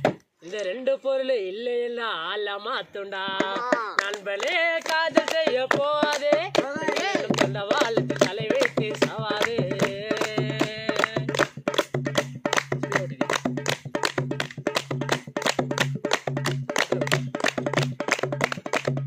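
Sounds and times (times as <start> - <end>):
man singing: 0.4 - 11.8, 12.8 - 13.7
hand claps: 3.7 - 19.0
barrel drum beating: 5.5 - 19.0.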